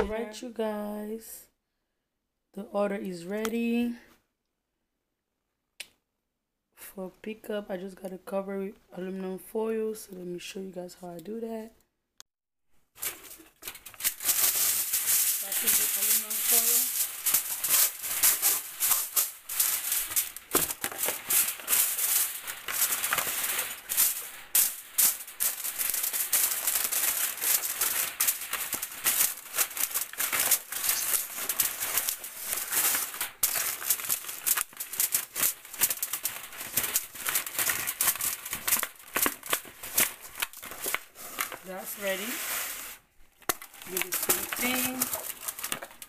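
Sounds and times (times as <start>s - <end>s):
aluminium foil crinkling: 12.9s - 46.0s.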